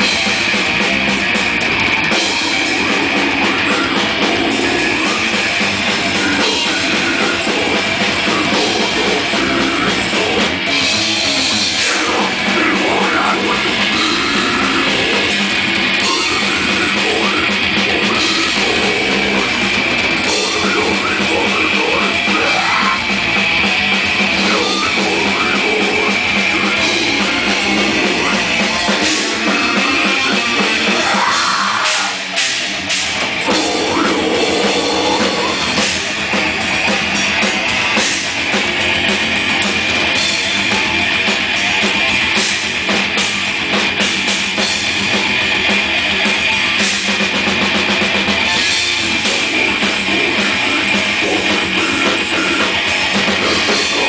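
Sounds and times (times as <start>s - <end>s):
distorted electric guitars: 0.0s - 54.0s
fast drum kit: 0.0s - 54.0s.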